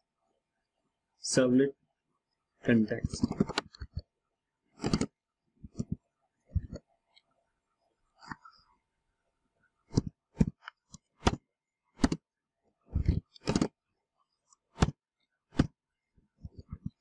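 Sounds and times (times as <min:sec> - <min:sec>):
computer keyboard typing: 0:04.8 - 0:05.1.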